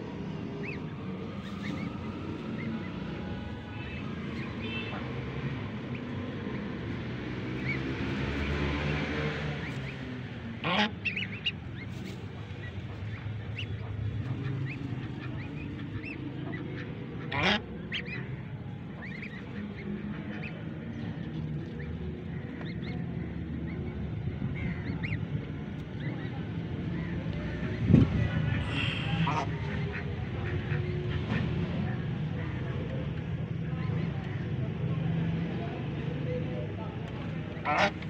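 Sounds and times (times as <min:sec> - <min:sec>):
ducklings peeping: 0:00.6 - 0:27.8, 0:37.0 - 0:38.0
adult waterfowl calling: 0:10.6 - 0:20.6, 0:28.5 - 0:31.1, 0:37.5 - 0:38.0.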